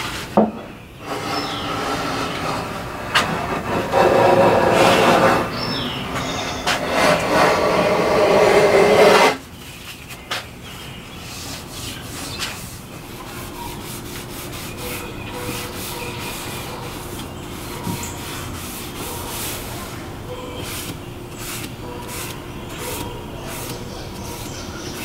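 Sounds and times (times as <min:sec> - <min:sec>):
rubbing: 0:01.0 - 0:05.6, 0:06.4 - 0:09.4, 0:11.3 - 0:20.0
hand plane shaving wood: 0:01.0 - 0:09.4, 0:20.6 - 0:25.0.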